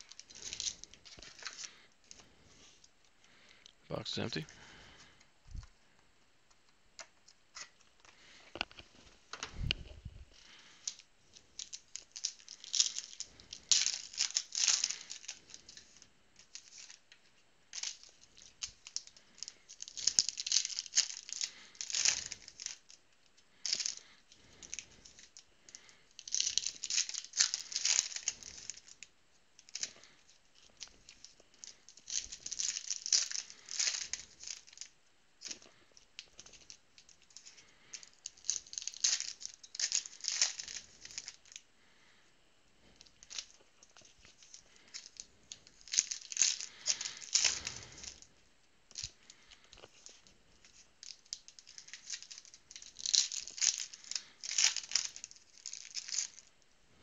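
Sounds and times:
foil wrappers crinkling: 0.0s - 3.5s, 7.5s - 42.2s, 42.8s - 48.3s, 48.9s - 56.6s.

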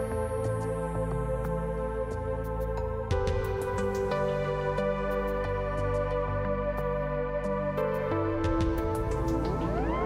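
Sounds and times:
sustained synthesizer chords: 6.2s - 10.0s.

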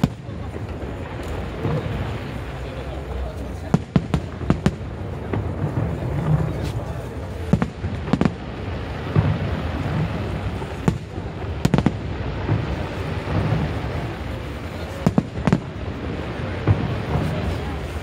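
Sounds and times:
continuous background din: 0.0s - 18.0s
fireworks bangs: 0.0s - 18.0s.

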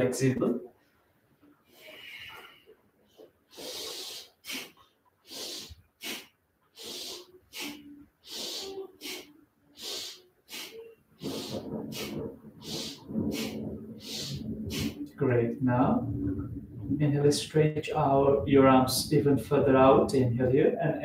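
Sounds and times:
person breathing through the nose: 1.7s - 2.7s, 3.5s - 15.1s.

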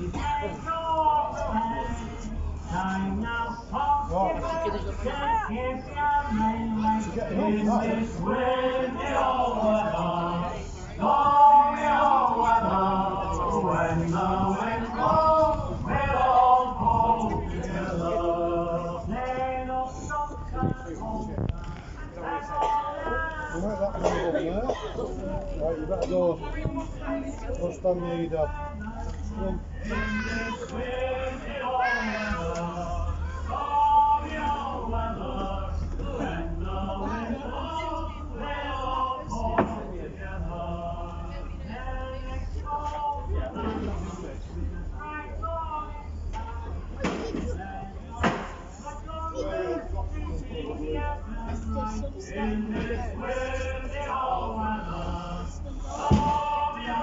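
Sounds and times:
men singing unaccompanied: 0.0s - 21.5s, 22.1s - 24.3s, 27.9s - 46.8s, 47.4s - 57.0s
steady low rumble: 0.0s - 24.1s, 25.1s - 57.0s
sharp knock: 56.1s - 56.5s.

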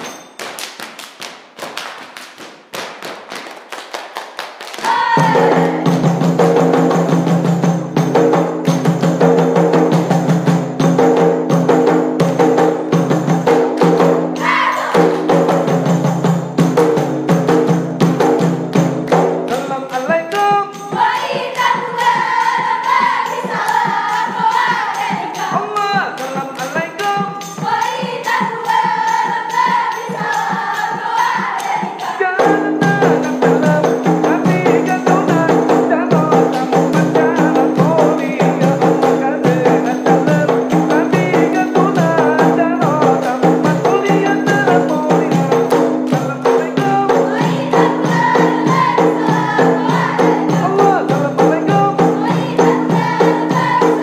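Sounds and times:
hands clapping and slapping: 0.0s - 5.0s
loud unison singing: 4.8s - 6.1s, 13.8s - 15.5s, 19.5s - 54.0s
frame drum: 4.8s - 54.0s.

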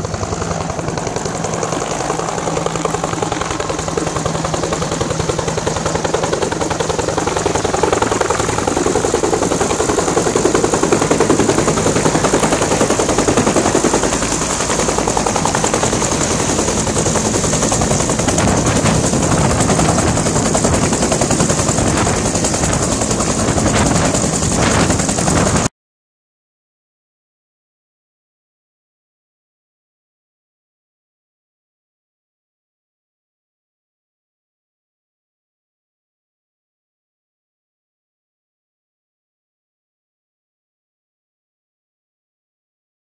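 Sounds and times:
helicopter rotor chopping: 0.0s - 25.7s
turbine engine running: 0.0s - 25.7s.

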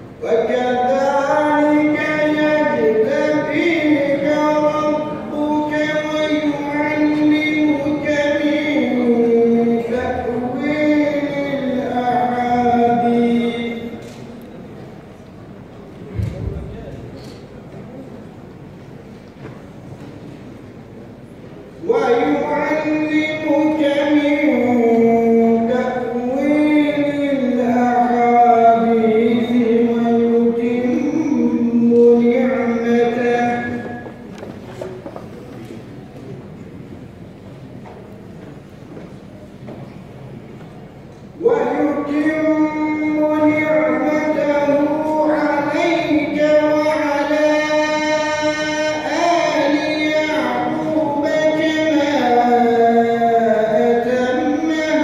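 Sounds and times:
man reciting melodically: 0.0s - 14.4s, 21.6s - 34.5s, 40.9s - 55.0s.

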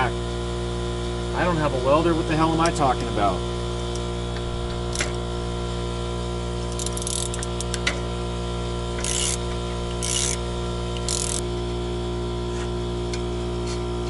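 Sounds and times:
socket ratchet clicking: 4.9s - 5.2s, 6.7s - 7.8s, 9.0s - 10.4s, 11.0s - 11.4s
sharp metal clicks: 6.7s - 7.9s, 9.0s - 10.4s, 11.0s - 11.4s.

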